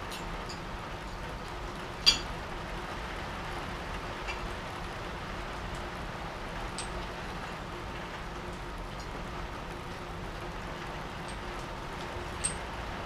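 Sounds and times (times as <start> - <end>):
metallic clink of tools: 2.0 - 2.3.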